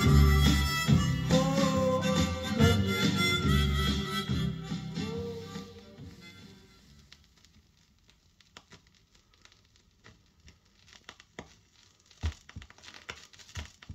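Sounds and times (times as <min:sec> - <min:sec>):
vinyl surface crackle and hiss: 0:04.8 - 0:13.9
soft record pops: 0:05.6 - 0:13.9.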